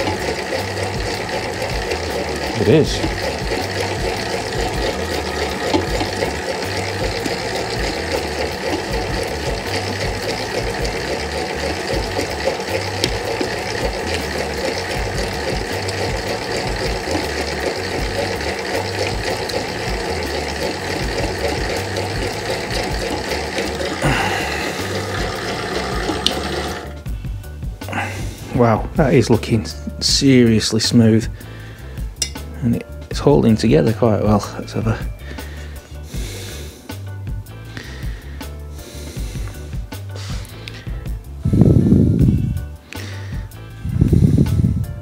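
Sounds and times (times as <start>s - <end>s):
spiral dough mixer running: 0.0s - 27.2s.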